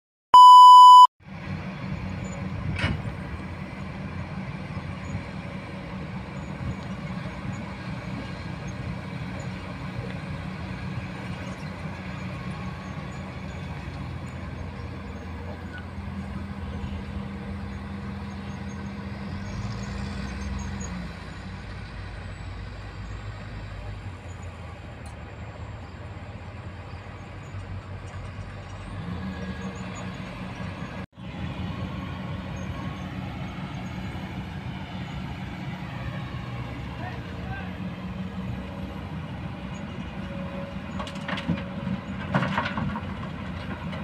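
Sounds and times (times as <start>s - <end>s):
test tone beep: 0.4s - 1.1s
distant heavy diesel machinery: 0.7s - 44.0s.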